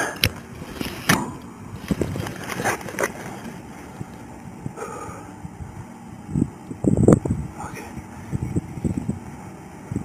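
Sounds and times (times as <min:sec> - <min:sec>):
gear knocking and scuffing: 0:00.3 - 0:04.2.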